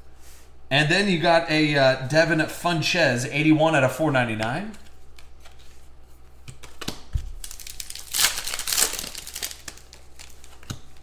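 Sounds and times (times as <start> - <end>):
card packaging crinkling: 6.5 - 11.0.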